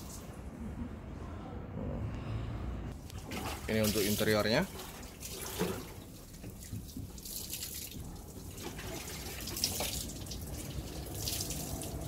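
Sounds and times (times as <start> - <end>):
water running and splashing: 3.1 - 12.0.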